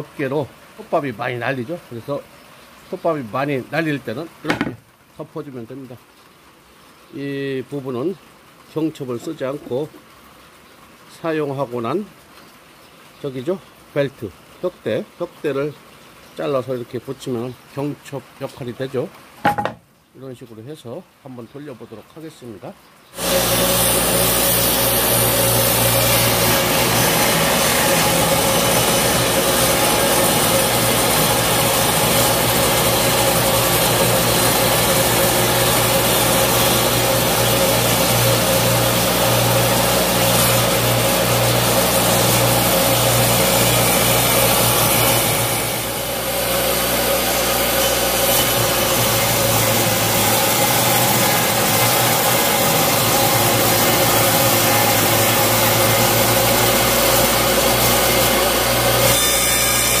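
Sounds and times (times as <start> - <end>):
table saw cutting wood: 23.2 - 60.0.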